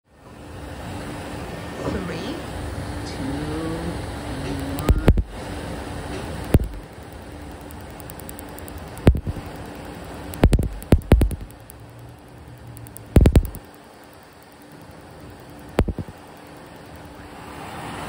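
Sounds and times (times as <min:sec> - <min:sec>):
steady machine hum: 0:00.1 - 0:18.0
laser pulses snapping: 0:04.5 - 0:05.4, 0:06.4 - 0:06.9, 0:07.5 - 0:09.6, 0:10.3 - 0:11.8, 0:12.8 - 0:13.7, 0:15.7 - 0:16.2.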